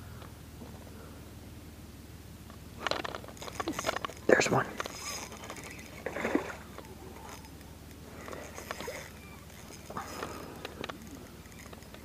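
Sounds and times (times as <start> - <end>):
fish splashing at water surface: 4.9 - 12.0.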